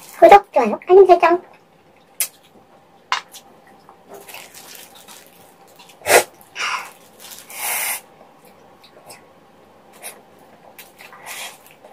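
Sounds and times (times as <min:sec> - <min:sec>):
wet eating sounds: 0:03.2 - 0:09.2.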